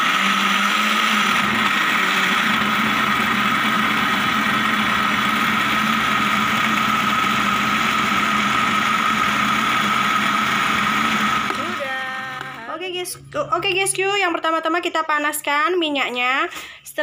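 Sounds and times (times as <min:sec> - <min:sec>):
electric blender motor running: 0:00.0 - 0:12.6.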